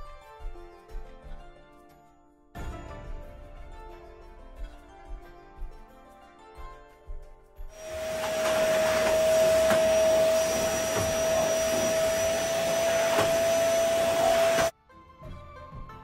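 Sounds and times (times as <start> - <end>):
vacuum cleaner running: 7.7 - 14.7.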